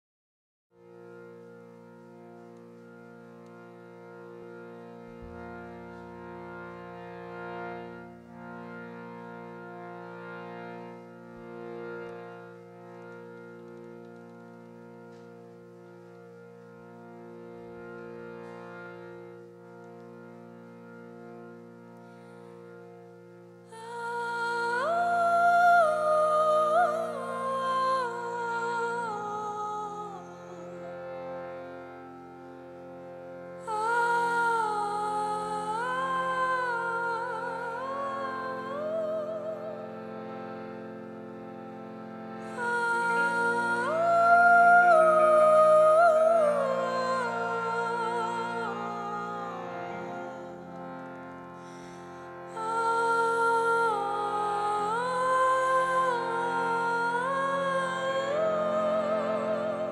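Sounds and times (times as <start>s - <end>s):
keyboard drone of held notes: 0.8s - 59.9s
woman singing: 23.7s - 30.9s, 33.6s - 39.9s, 42.4s - 50.2s, 52.5s - 59.9s.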